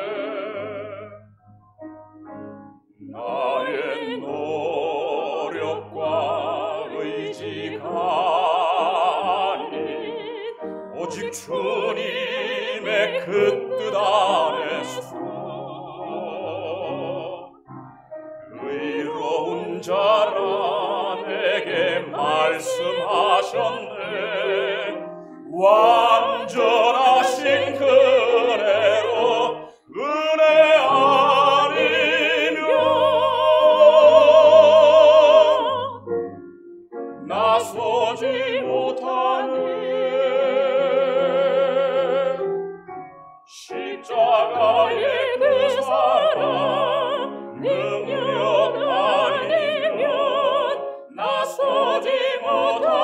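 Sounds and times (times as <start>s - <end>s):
soft instrumental accompaniment: 0.0s - 3.8s, 34.0s - 38.5s, 41.5s - 44.2s.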